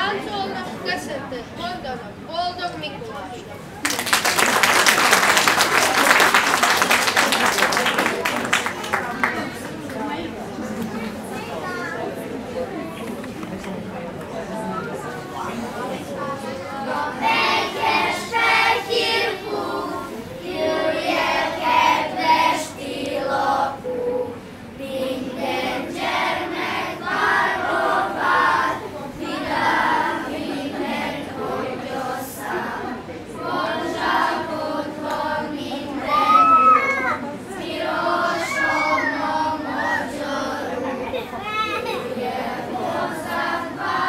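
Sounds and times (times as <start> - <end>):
children's choir singing: 16.0 - 41.2, 41.9 - 44.0.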